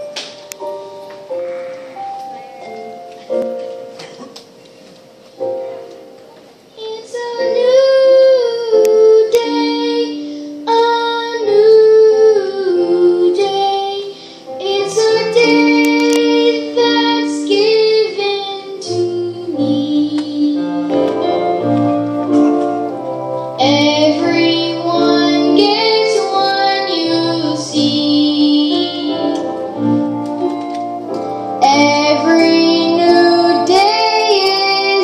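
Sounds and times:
children's choir singing: 6.8s - 23.0s, 23.6s - 30.7s, 31.6s - 35.0s.

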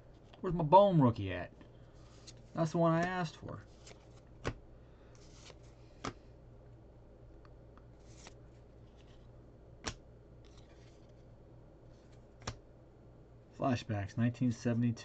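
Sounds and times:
cards rustling: 1.7s - 6.3s, 7.9s - 12.6s
card snaps: 9.8s - 10.6s, 12.4s - 12.6s.

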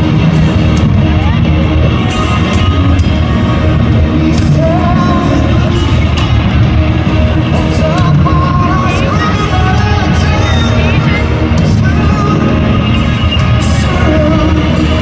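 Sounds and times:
drums: 0.0s - 15.0s
electric guitars: 0.0s - 15.0s
person singing: 2.1s - 6.3s, 7.2s - 15.0s.

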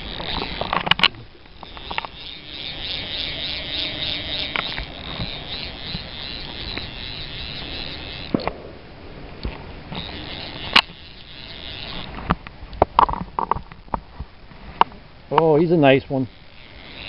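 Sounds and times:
steady hiss: 0.0s - 17.0s
sharp clicks: 0.1s - 8.6s, 9.4s - 14.0s.

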